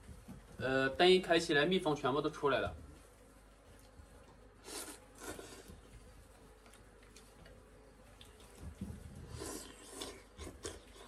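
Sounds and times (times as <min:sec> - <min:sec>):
person slurping noodles: 0:04.6 - 0:05.7, 0:09.3 - 0:11.0.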